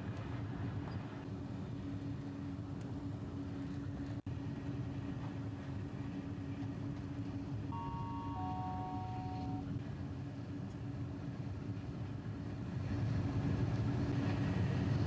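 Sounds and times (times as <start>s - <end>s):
faint chord of held tones: 7.7s - 9.8s.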